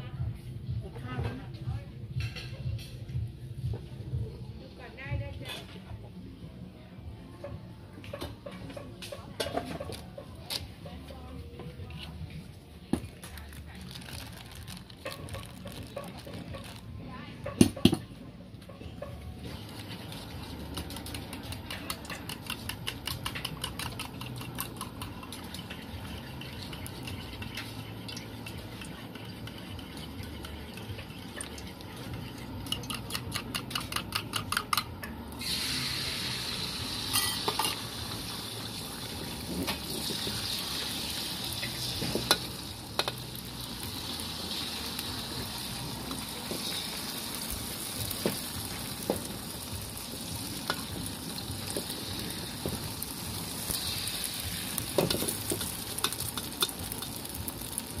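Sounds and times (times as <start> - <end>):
food sizzling in hot oil: 19.4 - 34.7, 35.3 - 58.0
eggs beaten in metal cup: 19.8 - 35.2.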